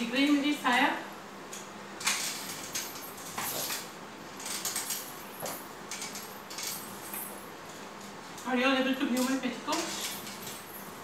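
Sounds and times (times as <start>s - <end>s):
crutches tapping on tiled floor: 4.6s - 6.2s.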